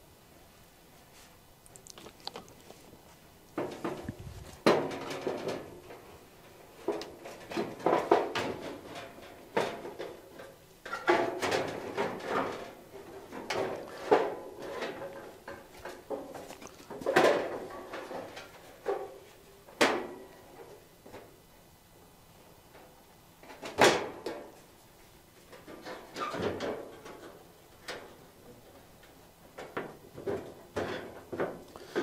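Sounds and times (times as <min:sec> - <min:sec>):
thin sheet metal knocking and rattling: 0:03.6 - 0:06.0.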